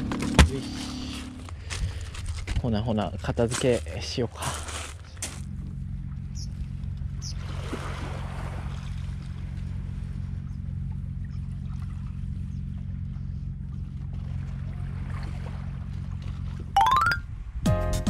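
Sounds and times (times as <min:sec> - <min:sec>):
low engine hum: 0:00.0 - 0:16.8
small waves lapping: 0:03.6 - 0:05.4, 0:06.4 - 0:16.7.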